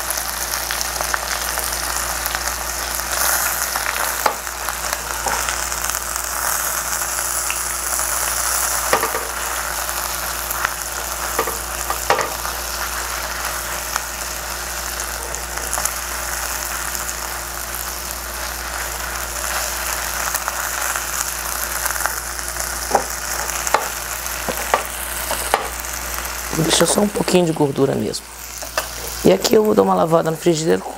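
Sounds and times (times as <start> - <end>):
chicken sizzling in frying pan: 0.0 - 30.8
chopsticks clicking on pan: 24.5 - 25.8.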